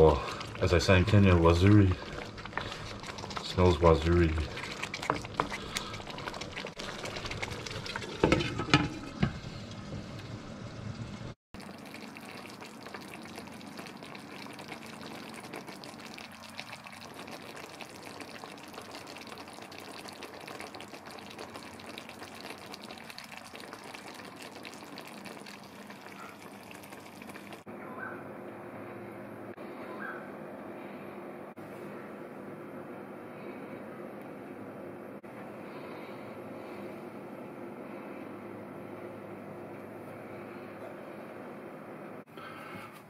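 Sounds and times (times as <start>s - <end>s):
curry bubbling in a pan: 0.0s - 27.7s
wooden spoon scraping a wok: 4.5s - 9.6s.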